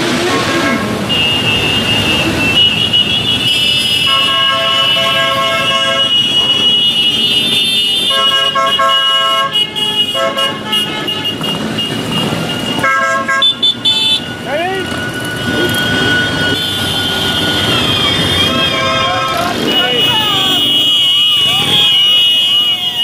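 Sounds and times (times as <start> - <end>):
horns honking: 0.0 - 23.0
high steady tone: 13.5 - 22.8.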